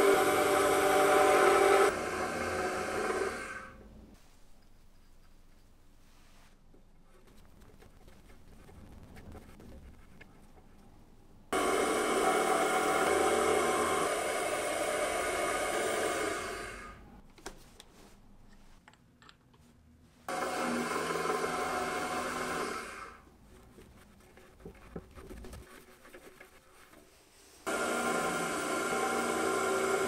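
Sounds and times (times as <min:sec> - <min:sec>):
milling machine spindle cutting metal: 0:00.0 - 0:03.4, 0:11.6 - 0:16.8, 0:27.7 - 0:30.0
light clicks and taps: 0:18.5 - 0:19.7.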